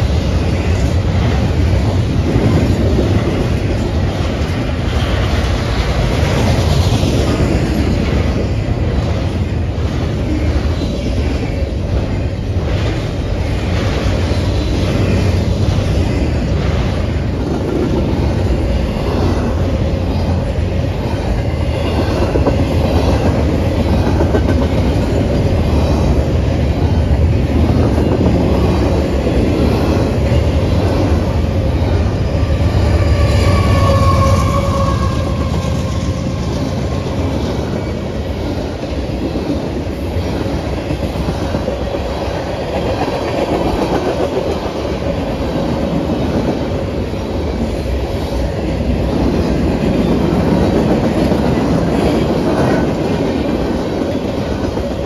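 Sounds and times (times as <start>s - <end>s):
train wheels clacking on rails: 0.0s - 55.0s
high wheel squeal: 32.2s - 36.4s.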